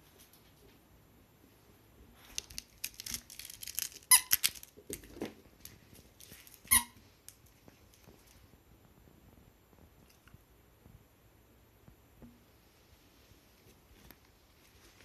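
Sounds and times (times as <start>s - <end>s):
squeaky toy squeaking: 4.1s - 4.4s, 6.7s - 7.0s.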